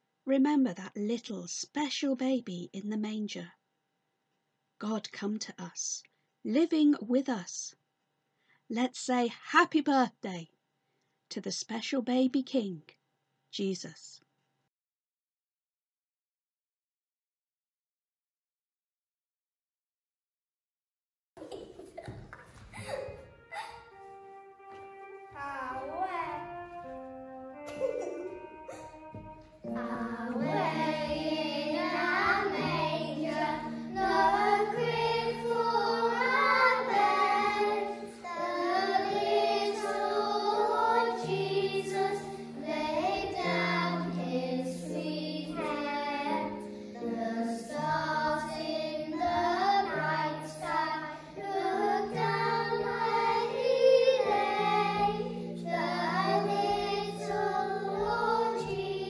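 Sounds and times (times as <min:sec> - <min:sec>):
instrumental accompaniment: 0:23.1 - 0:59.0
young children singing: 0:25.3 - 0:59.0.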